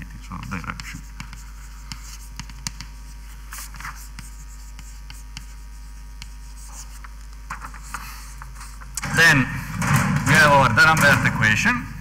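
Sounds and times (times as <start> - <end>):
steady low hum: 0.0 - 12.0
pen writing on paper: 0.5 - 8.8.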